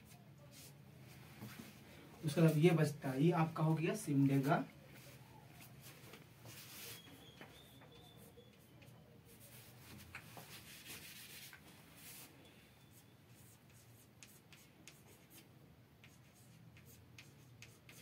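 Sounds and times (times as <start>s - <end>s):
chalk scratching on blackboard: 8.0s - 12.3s, 13.3s - 15.4s, 16.0s - 18.0s
chalk taps: 13.4s - 15.4s, 16.0s - 18.0s.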